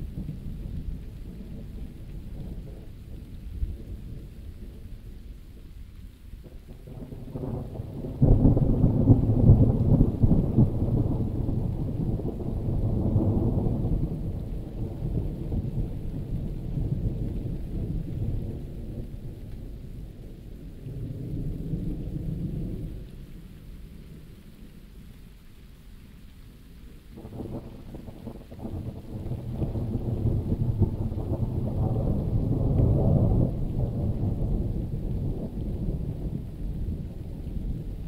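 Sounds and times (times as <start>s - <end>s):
rain hiss: 0.0s - 38.0s
thunder rolling: 27.2s - 38.0s.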